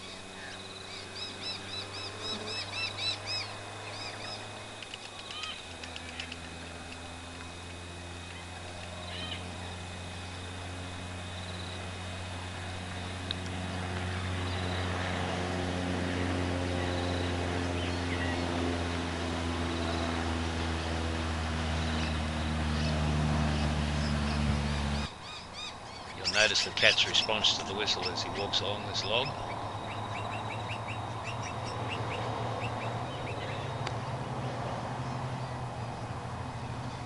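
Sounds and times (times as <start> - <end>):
low engine hum: 0.0 - 37.0.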